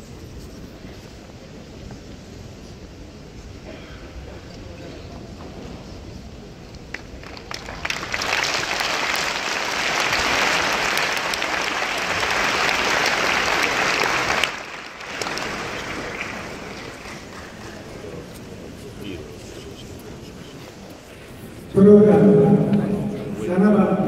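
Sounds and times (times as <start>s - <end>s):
audience applauding: 6.8s - 18.8s.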